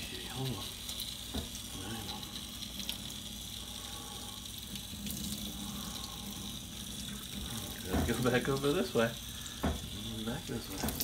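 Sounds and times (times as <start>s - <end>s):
water spraying on dog: 0.0s - 11.0s
water splashing in metal sink: 4.6s - 11.0s.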